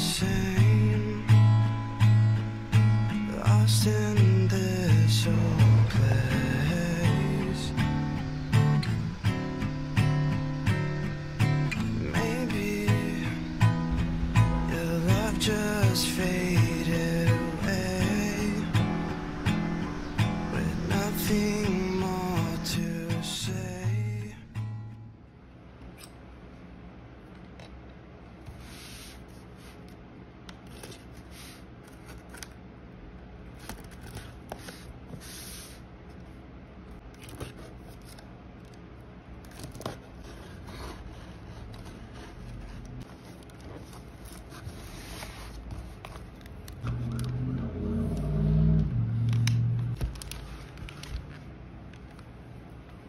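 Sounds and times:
knocks and rustling of packaging: 50.0 - 51.3.

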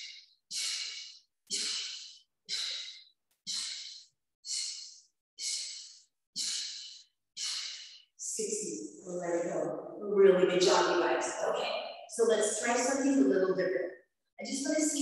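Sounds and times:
woman breathing hard: 0.0 - 8.1.

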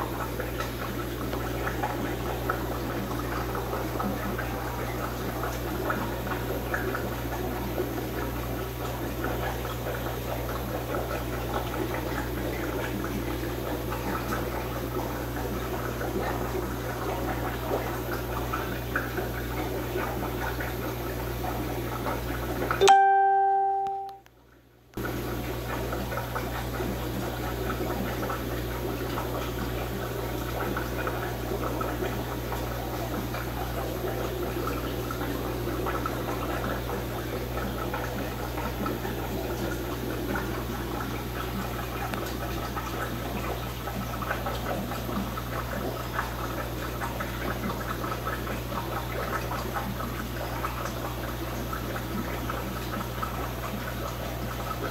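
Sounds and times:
aquarium filters bubbling: 0.0 - 54.9
short beep: 22.8 - 24.2.

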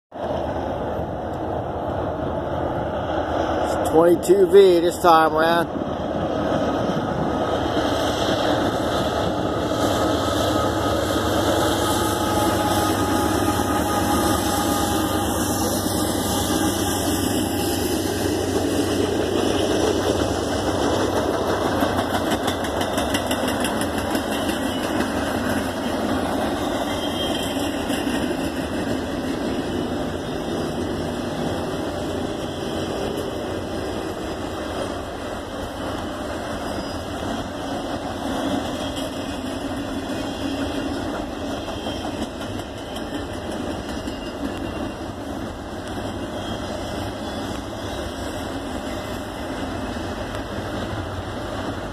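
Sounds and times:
diesel locomotive engine: 0.1 - 51.9
freight cars rolling on track: 0.1 - 51.9.

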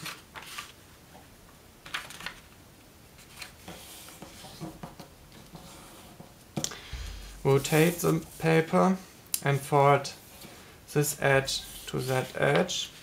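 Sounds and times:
paper rustling and sliding: 0.0 - 0.8, 3.2 - 4.7, 11.5 - 13.0.

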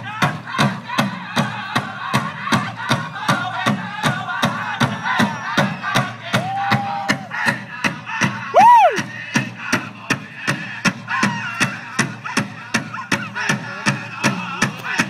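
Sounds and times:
big drum beating: 0.0 - 15.0
group singing: 0.0 - 15.0
loud whoop: 6.4 - 7.3, 8.5 - 9.1.

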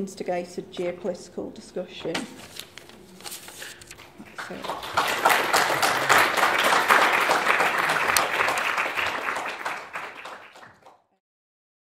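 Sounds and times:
audience applauding: 4.2 - 11.1.

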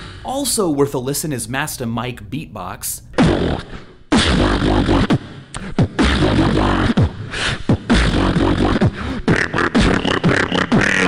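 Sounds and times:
person beatboxing into a microphone: 3.0 - 11.0.

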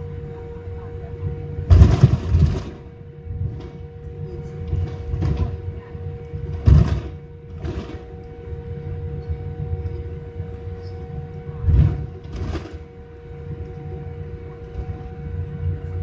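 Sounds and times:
aircraft cabin rumble: 0.0 - 16.0
constant whine: 0.0 - 16.0
short loud thuds: 1.7 - 2.8, 6.6 - 8.0.

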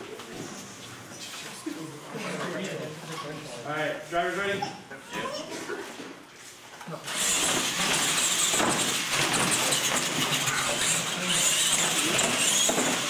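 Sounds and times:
electric motor whine: 7.1 - 13.0.

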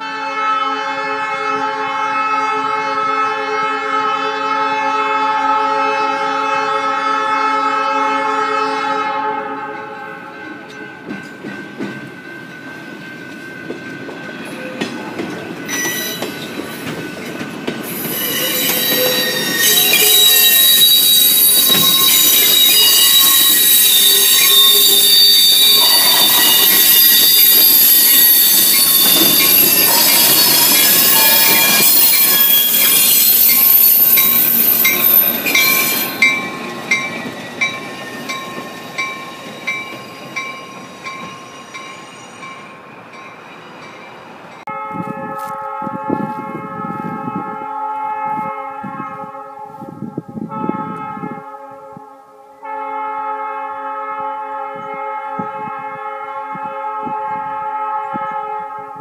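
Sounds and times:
train horn blast: 0.0 - 10.7, 18.0 - 36.7, 44.7 - 59.0
train cars rolling: 10.0 - 44.7
wheel flange squealing: 17.9 - 40.4.

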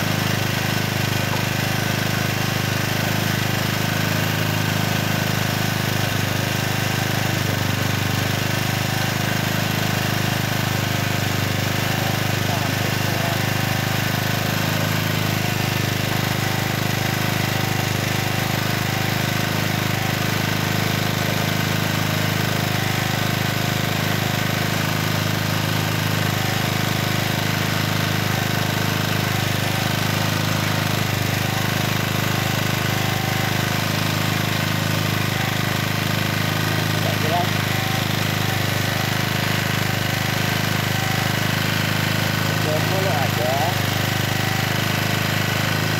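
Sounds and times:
generator engine running: 0.0 - 45.9.

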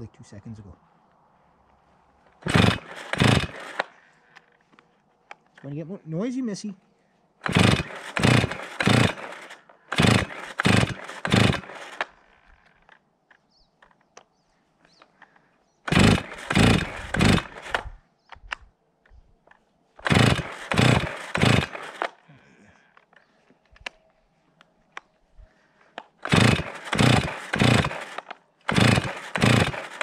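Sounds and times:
chainsaw starter cord pulls: 2.4 - 4.6, 7.4 - 13.0, 15.9 - 18.6, 20.0 - 23.2, 26.0 - 30.0.

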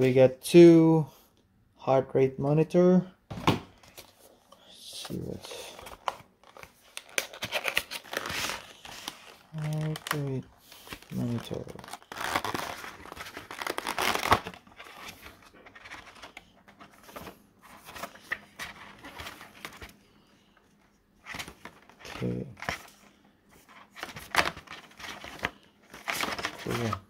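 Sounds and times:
plastic packaging crinkling: 5.6 - 17.2.

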